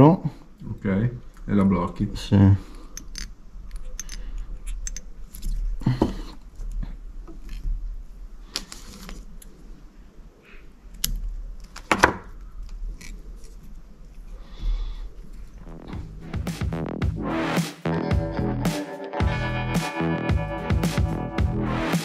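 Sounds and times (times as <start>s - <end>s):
tools clicking and rustling: 3.0s - 5.8s.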